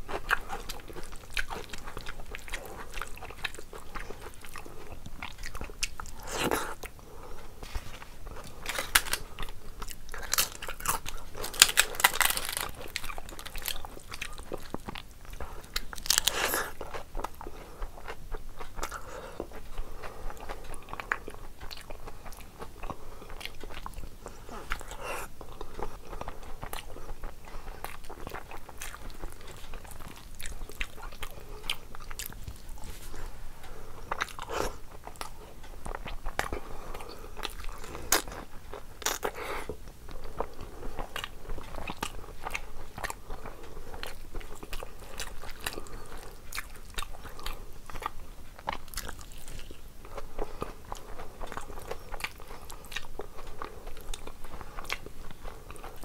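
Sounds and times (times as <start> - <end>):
chewing with mouth clicks: 0.0 - 56.0
crisp papad crunching: 7.6 - 17.3.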